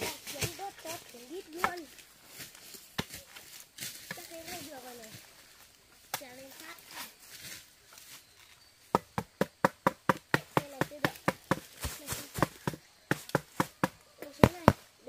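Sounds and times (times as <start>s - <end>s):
rapid chopping strikes: 8.9s - 14.8s.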